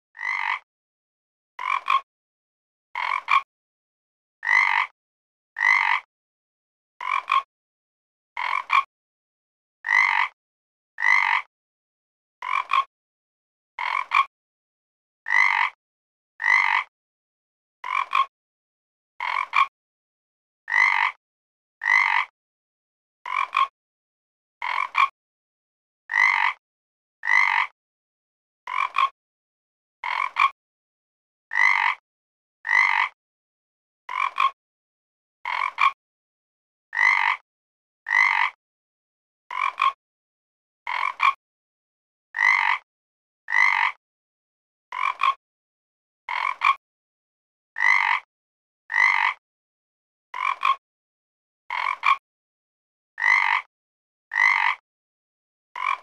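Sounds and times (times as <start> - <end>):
frog croaking: 0.2 - 0.6, 1.6 - 2.0, 3.0 - 3.5, 4.4 - 4.9, 5.6 - 6.1, 7.0 - 7.5, 8.4 - 8.9, 9.8 - 10.4, 11.0 - 11.5, 12.4 - 12.9, 13.8 - 14.3, 15.3 - 15.8, 16.4 - 16.9, 17.8 - 18.3, 19.2 - 19.7, 20.7 - 21.2, 21.8 - 22.3, 23.3 - 23.7, 24.6 - 25.1, 26.1 - 26.6, 27.2 - 27.7, 28.7 - 29.1, 30.0 - 30.6, 31.5 - 32.0, 32.6 - 33.1, 34.1 - 34.5, 35.5 - 36.0, 36.9 - 37.4, 38.1 - 38.6, 39.5 - 40.0, 40.9 - 41.4, 42.4 - 42.8, 43.5 - 44.0, 44.9 - 45.4, 46.3 - 46.7, 47.8 - 48.3, 48.9 - 49.4, 50.4 - 50.8, 51.7 - 52.2, 53.2 - 53.7, 54.3 - 54.8, 55.8 - 56.0.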